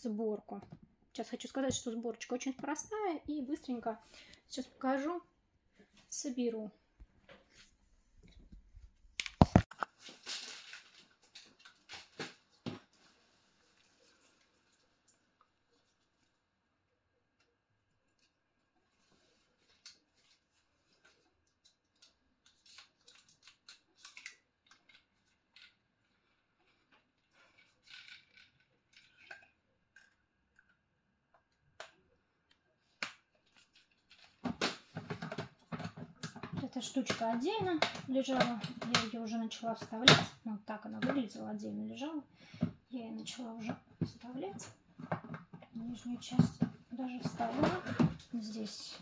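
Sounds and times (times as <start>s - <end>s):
plastic rubbing and clattering: 33.5s - 39.2s, 43.2s - 49.0s.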